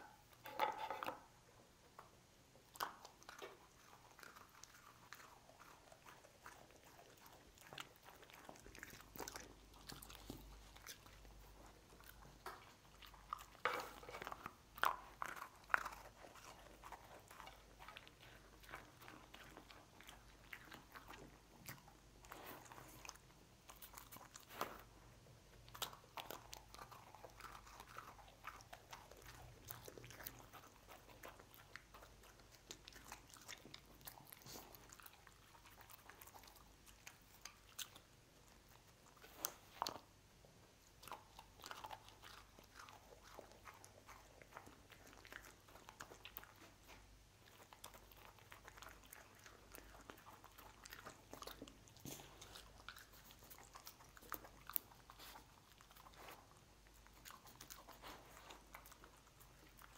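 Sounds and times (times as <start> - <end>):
dog licking: 2.0 - 59.9
dog crunching crumbs: 2.8 - 24.9.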